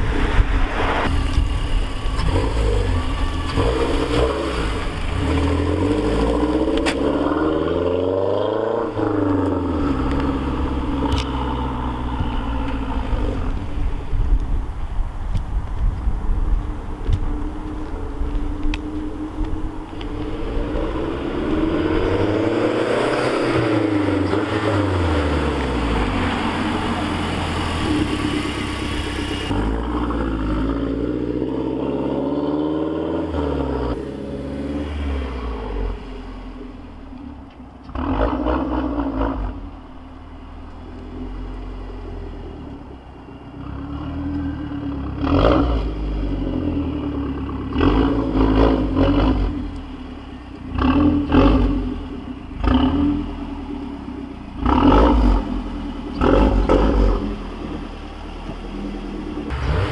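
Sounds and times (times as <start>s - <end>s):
car engine revving: 0.0s - 14.2s, 16.7s - 59.9s
car driving past: 17.8s - 40.4s.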